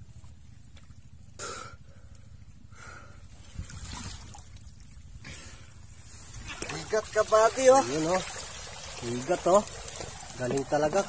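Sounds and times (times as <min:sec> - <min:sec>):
muddy water splashing: 0:03.4 - 0:11.0.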